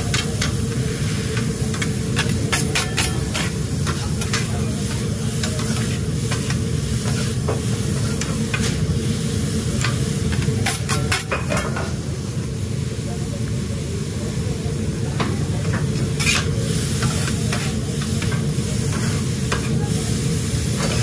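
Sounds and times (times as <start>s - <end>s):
metal spatulas clacking on griddle: 0.0s - 0.6s, 1.4s - 7.3s, 9.8s - 11.9s, 15.8s - 19.7s
food sizzling: 0.0s - 12.3s, 16.0s - 21.0s.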